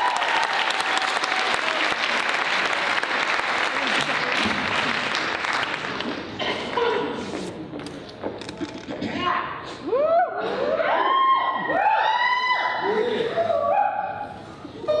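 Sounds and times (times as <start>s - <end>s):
cheering whoop: 0.0s - 1.8s, 9.9s - 12.9s
audience applauding: 0.0s - 6.5s.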